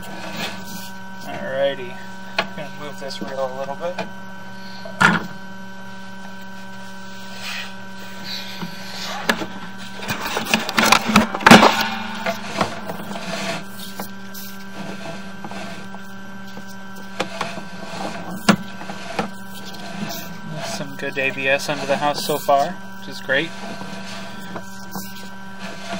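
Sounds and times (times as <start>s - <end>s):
steady camera system hum: 0.0s - 25.9s
cable rattling and scraping in pipe: 8.2s - 25.9s.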